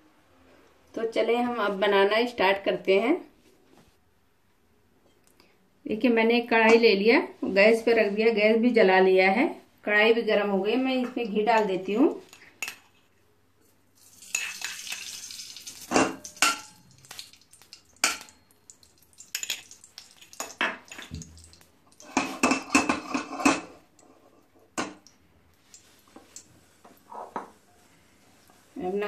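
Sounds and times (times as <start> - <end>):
spoon clinking against steel pan: 16.2 - 16.8.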